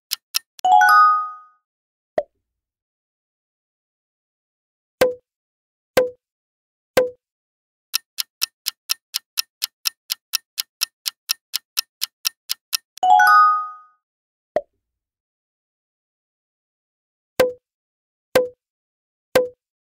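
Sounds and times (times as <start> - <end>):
countdown timer ticking: 0.0 - 0.7, 8.0 - 13.1.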